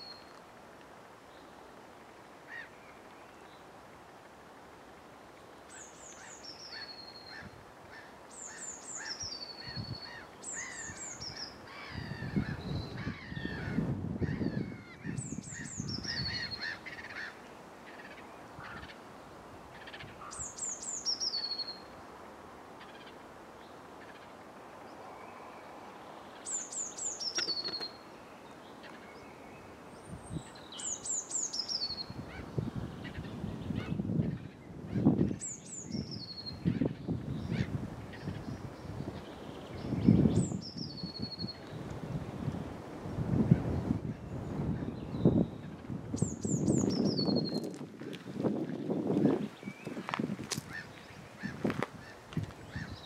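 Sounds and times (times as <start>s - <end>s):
soft bird chirps: 24.9s - 32.2s.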